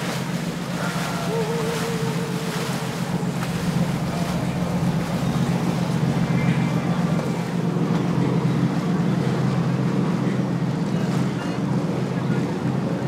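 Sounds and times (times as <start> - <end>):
wind on microphone: 0.0 - 9.2
boat engine running: 0.0 - 13.0
water rushing: 0.0 - 13.0.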